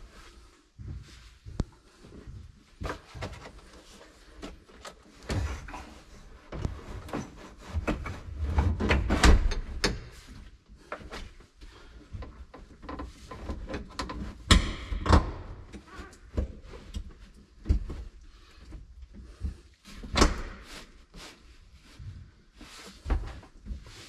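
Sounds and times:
plastic console knocks and thuds: 0:13.5 - 0:15.6.

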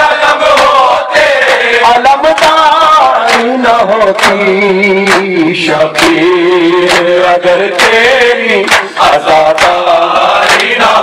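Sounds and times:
men chanting a lament: 0:00.0 - 0:11.0
hands slapping chests: 0:00.5 - 0:00.8, 0:03.2 - 0:03.6, 0:04.2 - 0:05.4, 0:06.0 - 0:06.2, 0:06.8 - 0:08.0, 0:08.6 - 0:10.9.

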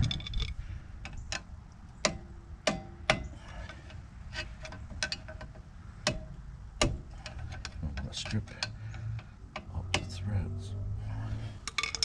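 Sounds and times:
metal tool clicking inside brake: 0:04.6 - 0:10.2.

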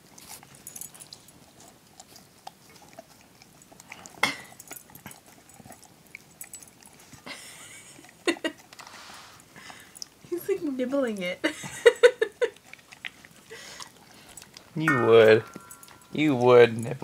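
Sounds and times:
dog chewing: 0:00.0 - 0:17.0
teeth knocking against bowl: 0:14.8 - 0:16.5.

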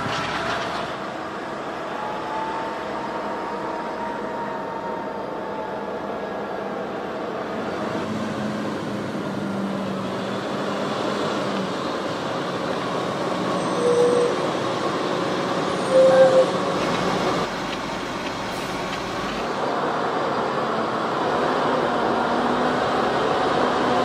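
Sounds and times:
short squeals: 0:15.8 - 0:16.6
tractor engine under load: 0:16.6 - 0:19.8.

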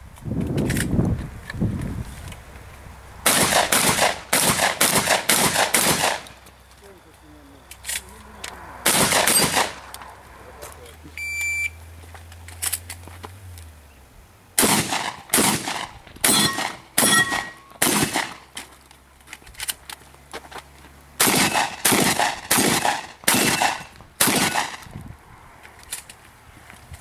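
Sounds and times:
shotgun shots: 0:03.2 - 0:06.4, 0:08.8 - 0:09.8, 0:14.6 - 0:18.4, 0:21.2 - 0:24.8
metallic ring: 0:16.3 - 0:17.8.

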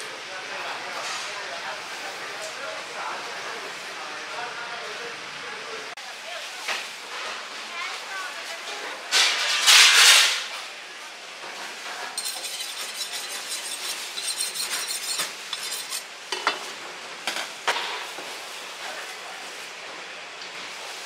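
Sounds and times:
knife cutting meat: 0:12.2 - 0:16.0
knife on honing steel: 0:12.2 - 0:16.5.

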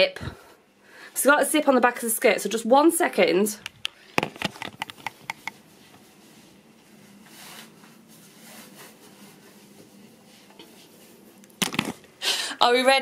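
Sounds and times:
clothing fabric rustling: 0:04.3 - 0:12.0.

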